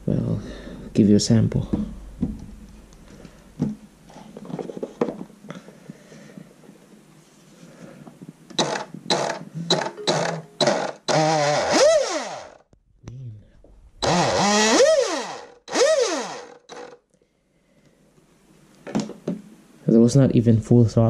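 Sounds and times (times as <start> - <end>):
electric motor revving whine: 8.6 - 12.6, 14.0 - 17.0.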